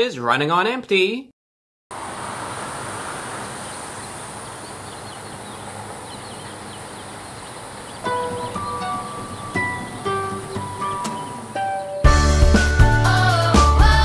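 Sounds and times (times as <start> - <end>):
high insect drone: 2.0 - 11.7
faint bird chirps: 2.3 - 12.1
plucked-string music: 8.0 - 12.6.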